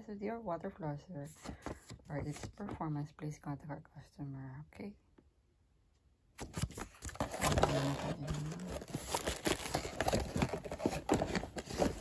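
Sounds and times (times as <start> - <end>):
cardboard box rustling and scraping: 6.6 - 12.0.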